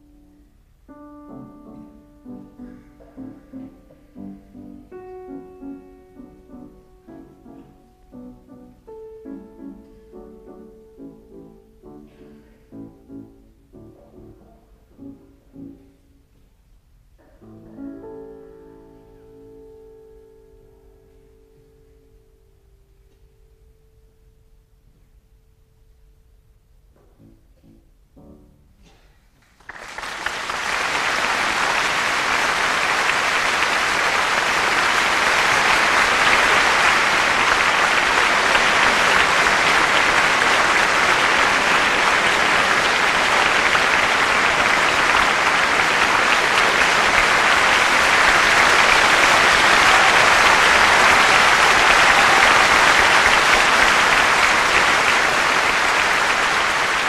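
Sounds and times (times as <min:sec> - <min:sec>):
audience applause: 0:29.4 - 0:57.0.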